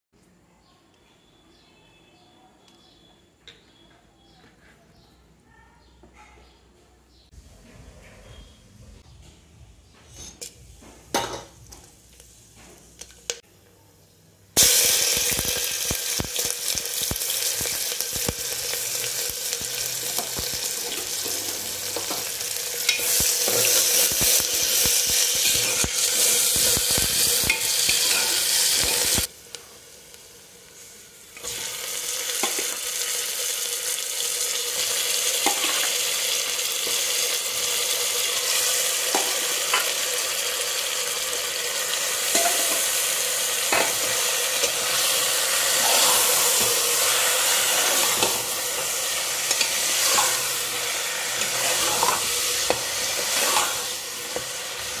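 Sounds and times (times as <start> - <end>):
onions sizzling in hot oil: 14.6 - 55.0
metal spoon scraping pot: 27.5 - 29.2, 51.4 - 54.4.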